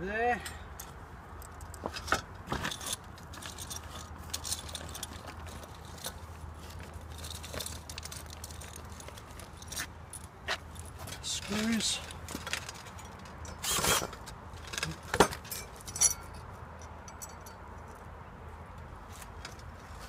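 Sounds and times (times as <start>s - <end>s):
metal fittings clinking: 14.7s - 16.5s.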